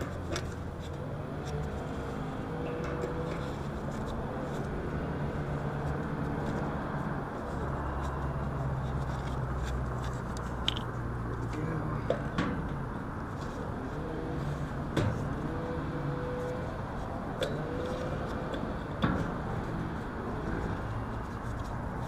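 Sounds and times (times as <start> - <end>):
clicks and scrapes on metal fan guard: 17.4 - 22.0.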